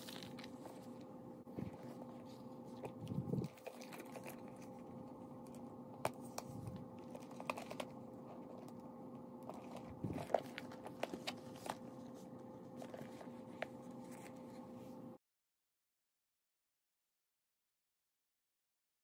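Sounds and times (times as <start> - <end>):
steady low hum: 0.0 - 15.2.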